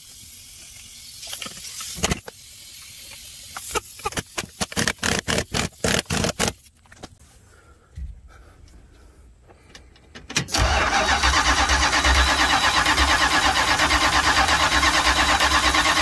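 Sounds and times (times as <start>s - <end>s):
air hissing: 0.0s - 6.7s
impact wrench bursts: 1.3s - 6.7s, 10.4s - 16.0s.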